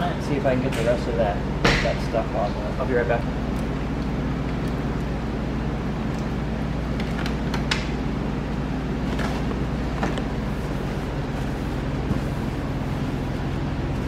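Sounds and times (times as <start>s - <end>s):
low machine hum: 0.0s - 14.0s
wet rag wiping plastic: 9.0s - 14.0s.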